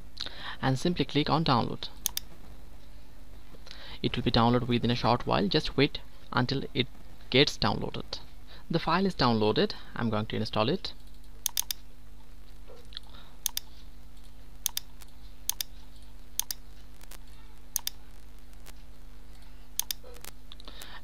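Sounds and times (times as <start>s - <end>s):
low electrical hum: 0.0s - 21.0s
mouse button clicks: 19.8s - 20.3s.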